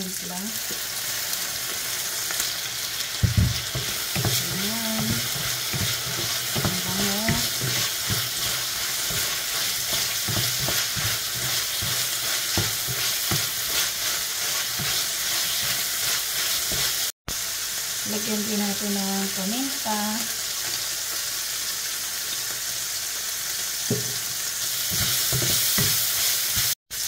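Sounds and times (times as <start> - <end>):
food sizzling in hot oil: 0.0 - 27.0
louder knock: 3.2 - 3.6
wooden spoon scraping a wok: 3.3 - 17.1, 24.6 - 26.8.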